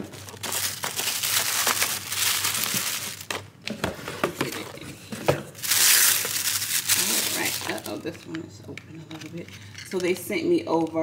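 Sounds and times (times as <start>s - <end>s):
tissue paper crinkling: 0.0s - 3.4s, 5.6s - 8.1s.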